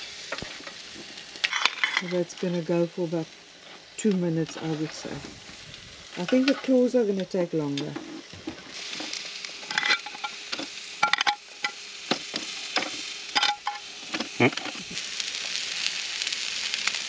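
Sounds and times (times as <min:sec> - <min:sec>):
lobster sizzling on grill: 0:00.0 - 0:17.0
metal tongs clinking: 0:09.7 - 0:10.4, 0:11.0 - 0:11.8, 0:13.4 - 0:14.8.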